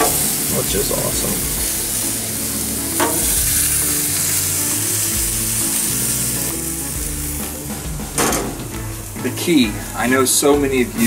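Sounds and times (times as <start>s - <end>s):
fish sizzling on a grill: 0.0s - 11.0s.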